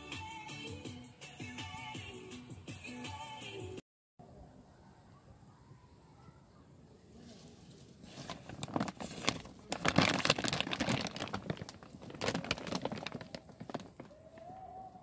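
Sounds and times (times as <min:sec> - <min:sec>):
tent fabric rustling and crinkling: 0:07.2 - 0:14.7.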